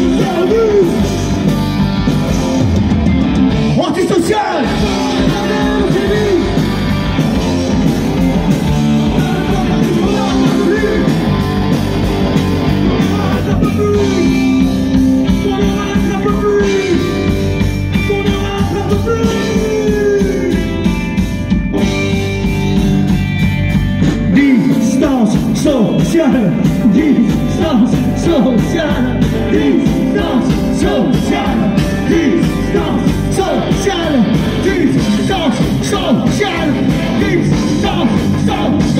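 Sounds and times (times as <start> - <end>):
person singing: 0.0 - 1.3, 3.9 - 7.2, 8.8 - 11.8, 12.8 - 21.0, 24.2 - 38.9
bass: 0.0 - 38.9
drums: 0.0 - 38.9
electric guitars: 0.0 - 38.9
keyboard: 0.0 - 38.9.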